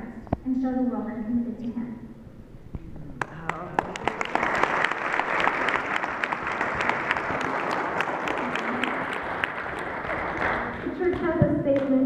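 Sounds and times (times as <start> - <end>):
congregation applauding: 3.2 - 11.3.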